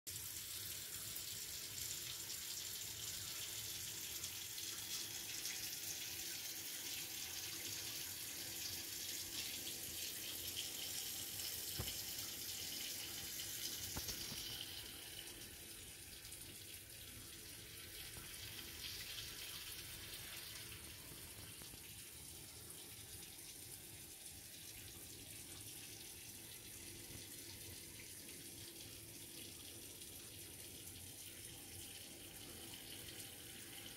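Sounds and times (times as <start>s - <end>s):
running water hissing: 10.1s - 16.0s.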